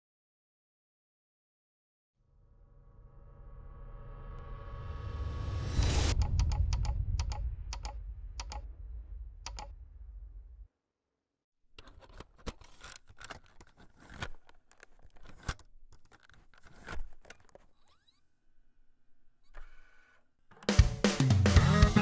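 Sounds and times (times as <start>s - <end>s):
low rumble: 2.9s - 10.7s
sharp clicks: 6.2s - 8.6s, 9.5s - 9.7s.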